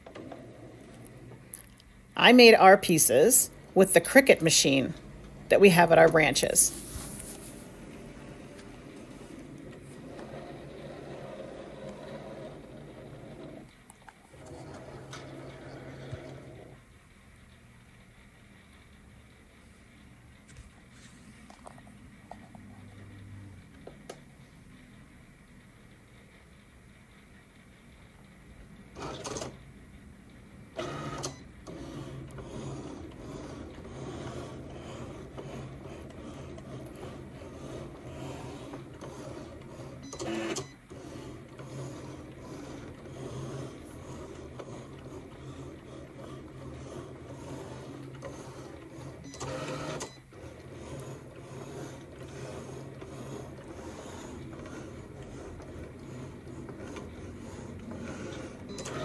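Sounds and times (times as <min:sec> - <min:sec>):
cutting machine motor whirring: 0:02.3 - 0:16.8, 0:30.7 - 0:59.0.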